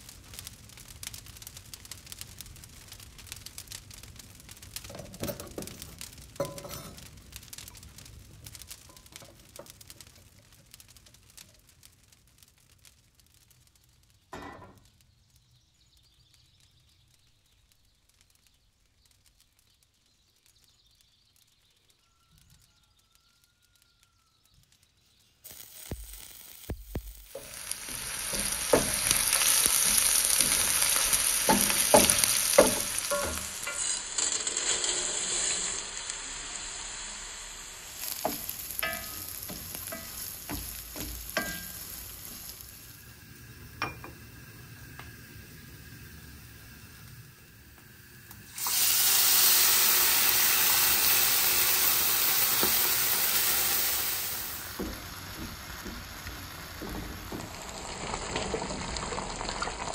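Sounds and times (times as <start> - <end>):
onion sizzling in hot oil: 0.0 - 17.6, 22.8 - 59.9
rice sizzling in oil: 0.0 - 59.9
wooden spoon scraping pan: 6.4 - 7.1, 27.3 - 36.4, 37.8 - 42.8.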